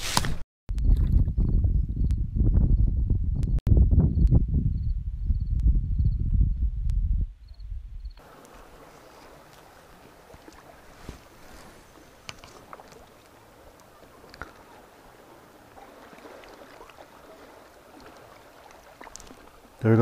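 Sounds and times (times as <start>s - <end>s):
small waves lapping on rocks: 8.2s - 20.0s
faint sharp clicks: 12.2s - 14.6s, 19.0s - 19.4s.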